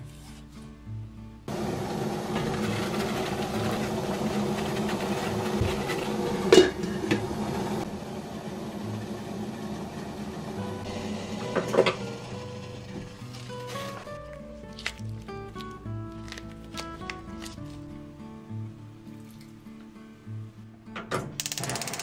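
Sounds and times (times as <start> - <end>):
water boiling: 1.5 - 17.6
metal lid clinking: 6.5 - 7.2.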